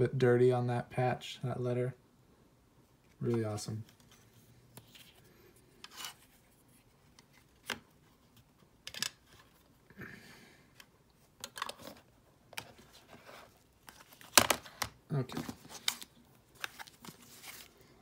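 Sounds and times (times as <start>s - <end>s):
cards rustling: 3.1s - 9.7s, 11.3s - 18.0s.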